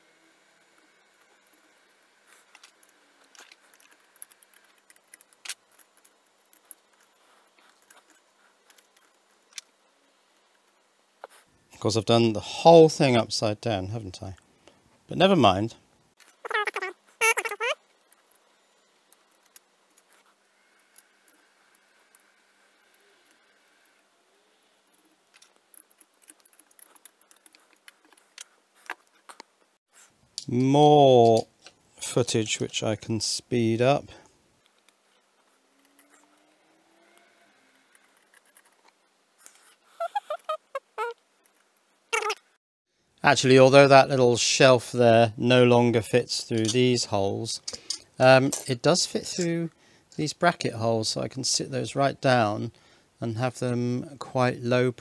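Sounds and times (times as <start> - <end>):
clicks of small parts handled: 2.4 - 9.7, 25.0 - 29.5, 46.6 - 46.8, 47.6 - 48.8.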